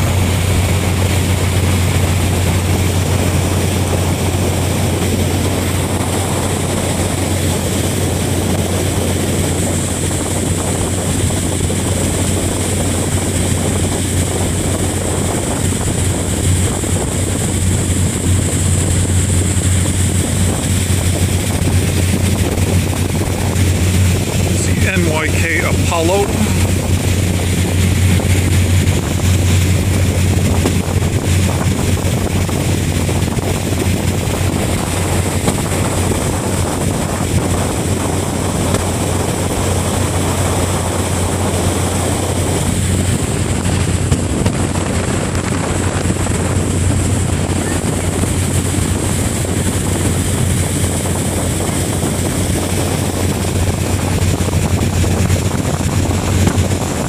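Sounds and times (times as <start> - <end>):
water rushing: 0.0 - 57.0
wind noise on microphone: 0.0 - 57.0
ferry engines droning: 10.9 - 54.8.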